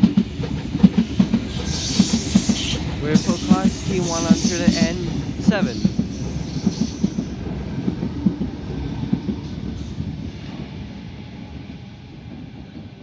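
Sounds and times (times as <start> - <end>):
electric train rumble: 0.0 - 13.0.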